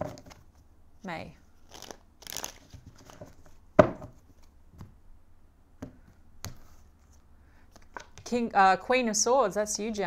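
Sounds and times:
cards riffle-shuffled: 1.6 - 3.6.

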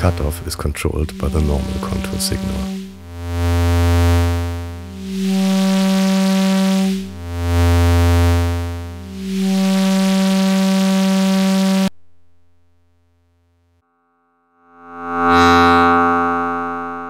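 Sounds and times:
high bright synthesizer tone: 0.0 - 3.0
low synthesizer tone: 0.0 - 13.8.

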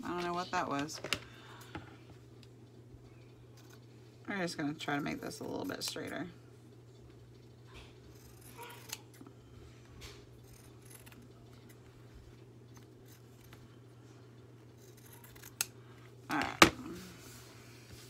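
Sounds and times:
scissors snipping paper: 14.8 - 15.7.

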